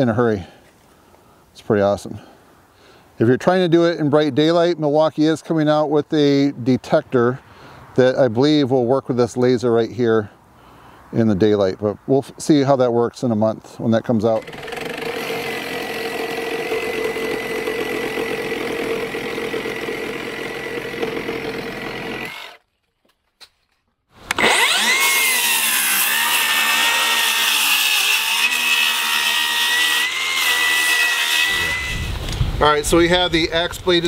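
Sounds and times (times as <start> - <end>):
reciprocating saw cutting wood: 14.1 - 22.7, 24.2 - 32.4.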